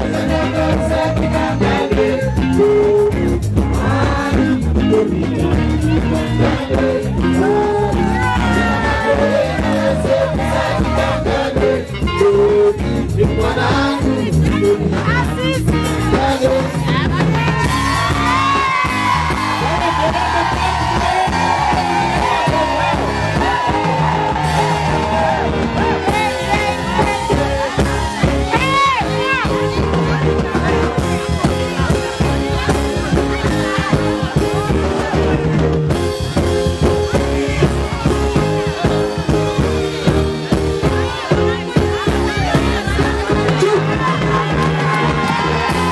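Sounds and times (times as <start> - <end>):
crowd voices: 0.0 - 45.9
dance music with singing: 0.0 - 45.9
high shouts: 7.2 - 11.4, 15.3 - 35.2, 42.0 - 45.9.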